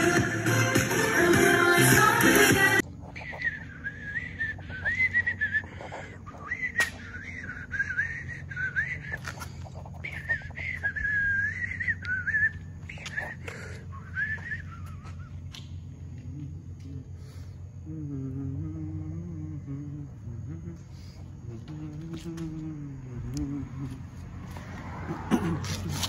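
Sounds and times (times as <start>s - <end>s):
background music: 0.0s - 2.8s
person whistling a tune: 3.2s - 9.3s, 10.0s - 15.4s.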